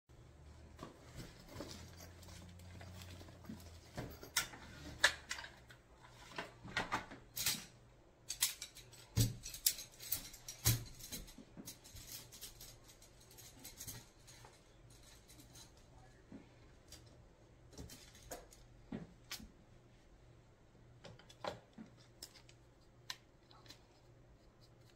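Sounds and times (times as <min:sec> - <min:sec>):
metal table frame clicking and rattling: 0:01.6 - 0:05.8, 0:06.8 - 0:15.8.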